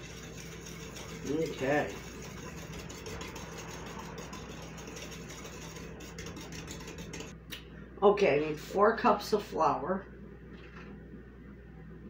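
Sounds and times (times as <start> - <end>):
whisk clicking against glass bowl: 0.0 - 7.4.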